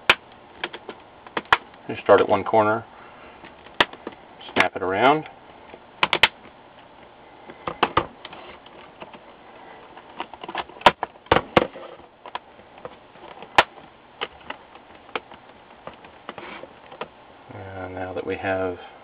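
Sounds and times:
plastic clips snapping: 0:06.0 - 0:06.5.

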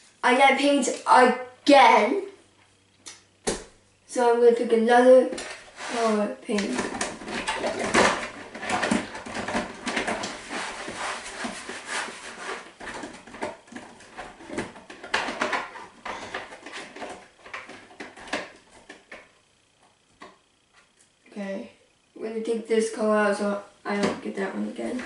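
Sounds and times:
plastic bottles rattling: 0:06.5 - 0:19.2.

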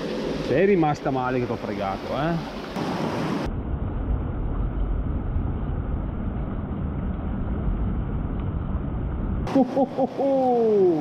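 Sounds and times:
small cascade rushing: 0:00.0 - 0:03.5.

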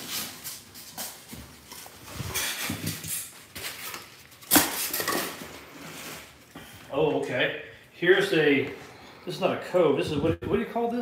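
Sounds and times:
paper and cardboard rustling: 0:00.0 - 0:06.5.

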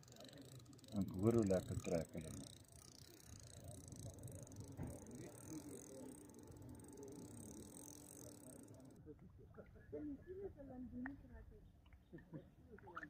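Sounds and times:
fishing reel ratchet ticking: 0:00.0 - 0:09.0.

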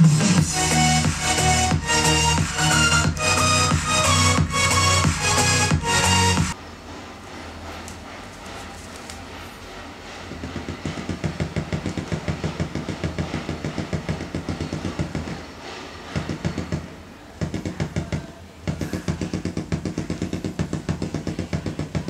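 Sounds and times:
bass-heavy music through speaker: 0:00.0 - 0:06.6, 0:10.3 - 0:15.5.

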